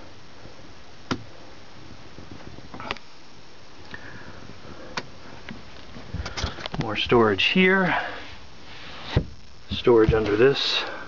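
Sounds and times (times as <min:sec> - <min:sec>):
room hiss: 0:00.0 - 0:11.0.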